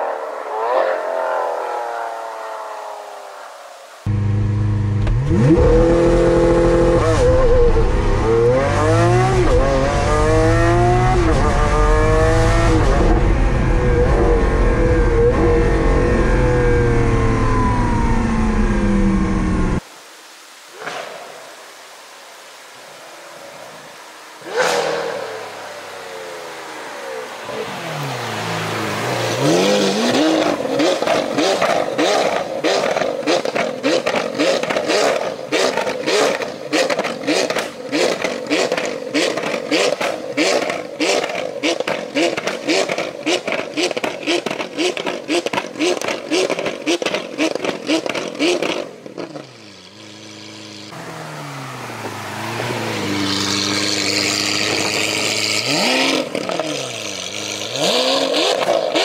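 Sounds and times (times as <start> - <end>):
car engine revving: 4.1 - 19.8, 27.5 - 59.0
exhaust crackles and pops: 4.9 - 5.9, 29.8 - 51.0, 53.1 - 59.0.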